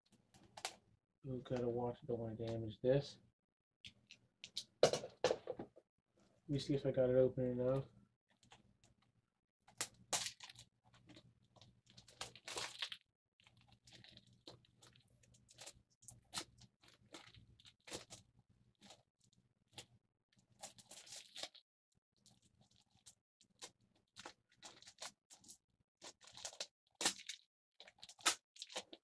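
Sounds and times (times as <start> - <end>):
plastic wrap tearing and crinkling: 9.8 - 10.7, 11.8 - 18.3, 20.6 - 21.6, 22.4 - 25.5, 26.1 - 29.0.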